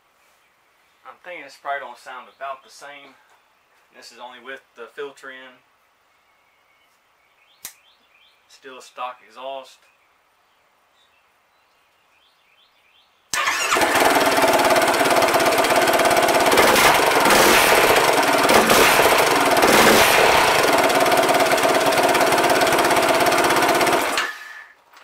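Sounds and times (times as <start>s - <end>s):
motorcycle engine running: 13.4s - 24.5s.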